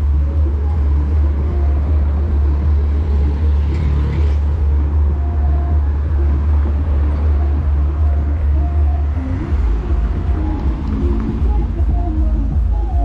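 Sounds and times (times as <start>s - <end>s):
outdoor low rumble: 0.0s - 13.0s.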